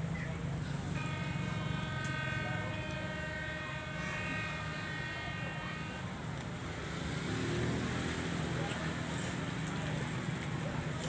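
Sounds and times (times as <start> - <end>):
ferry horn blast: 0.9 - 6.8.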